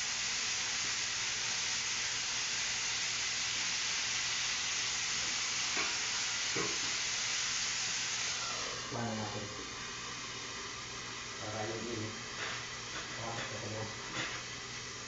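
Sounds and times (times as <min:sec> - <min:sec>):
food sizzling in a pan: 0:00.0 - 0:08.8.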